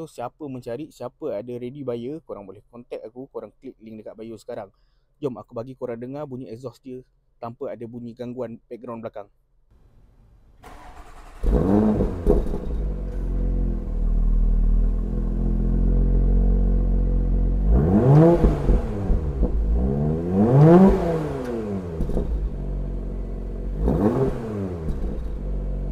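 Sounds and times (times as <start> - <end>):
car engine idling and revving: 10.6 - 25.9.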